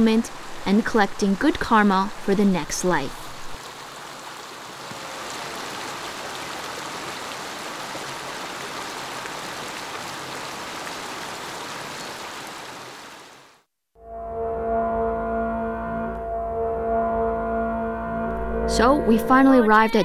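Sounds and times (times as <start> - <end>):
stream running over rocks: 0.0 - 13.6.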